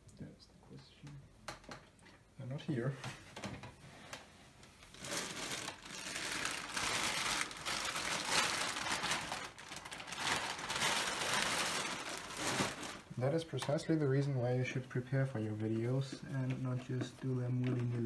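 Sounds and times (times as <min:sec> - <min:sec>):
packaging crinkling and rustling: 0:04.8 - 0:14.0.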